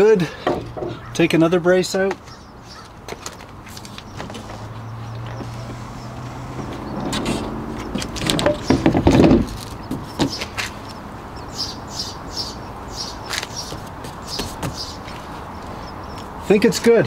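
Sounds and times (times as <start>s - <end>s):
roof panel clunks: 0.4s - 1.1s, 6.6s - 10.6s
roof panel sliding and rubbing: 3.7s - 10.8s
small bird chirping: 9.7s - 16.6s.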